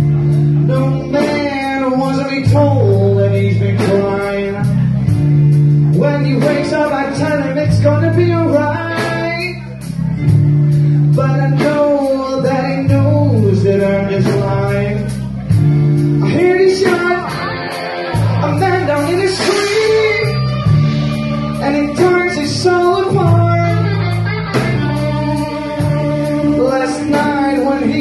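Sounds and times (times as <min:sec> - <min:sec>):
bass guitar: 0:00.0 - 0:28.0
electric guitar: 0:00.0 - 0:28.0
steady drum beat: 0:00.0 - 0:28.0
lead vocal singing: 0:16.2 - 0:28.0.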